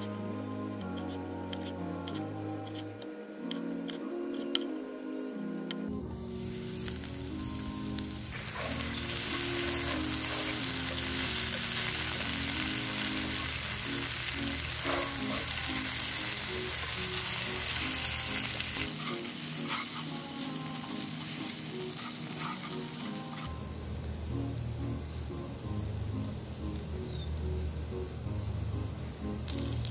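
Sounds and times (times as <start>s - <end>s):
potatoes sizzling in a pot: 6.0s - 27.3s, 29.1s - 29.9s
wooden spatula scraping: 18.9s - 20.4s, 21.9s - 23.5s.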